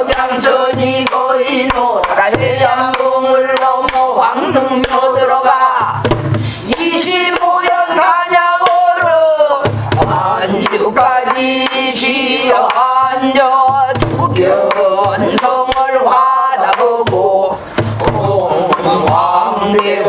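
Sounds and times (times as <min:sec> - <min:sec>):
barrel drum booms: 0:04.5 - 0:06.7, 0:09.6 - 0:10.7, 0:12.9 - 0:15.4, 0:17.0 - 0:19.4.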